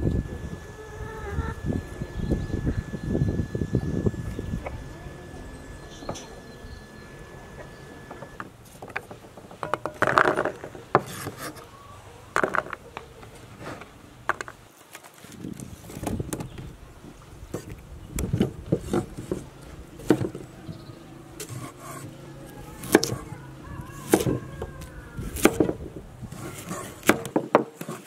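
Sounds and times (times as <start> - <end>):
knife slicing carrots on wood: 22.8 - 23.3, 24.0 - 28.0.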